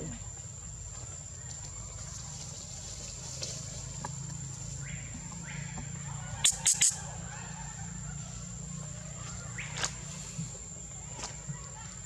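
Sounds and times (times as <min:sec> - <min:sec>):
high-pitched insect drone: 0:06.4 - 0:07.1.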